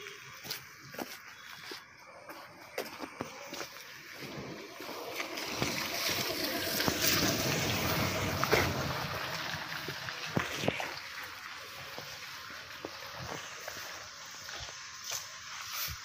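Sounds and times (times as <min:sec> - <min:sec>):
vehicle driving through water: 0:05.0 - 0:10.8.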